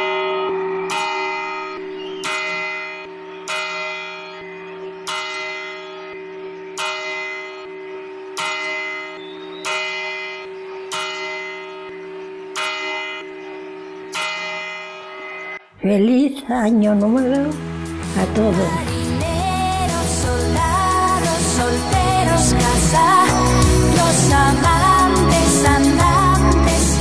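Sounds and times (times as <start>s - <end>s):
clock bell striking: 0.0s - 15.7s.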